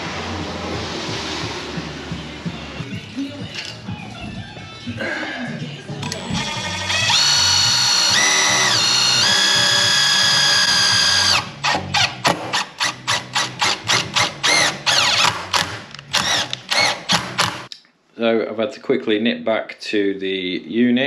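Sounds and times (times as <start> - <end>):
cordless drill driving a screw: 6.0 - 17.7.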